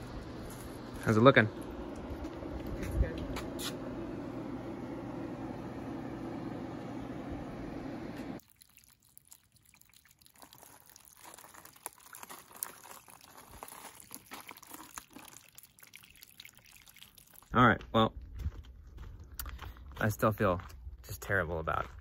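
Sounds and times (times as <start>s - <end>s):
water dripping and trickling: 8.4s - 17.6s.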